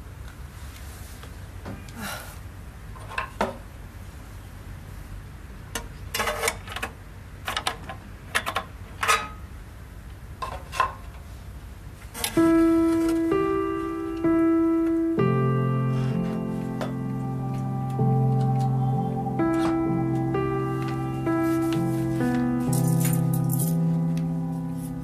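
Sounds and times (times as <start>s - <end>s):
clock ringing notes: 12.4s - 25.0s.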